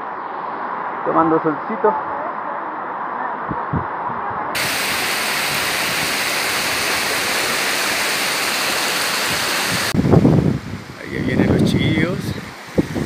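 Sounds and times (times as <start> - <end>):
waterfall rushing: 4.6 - 13.0.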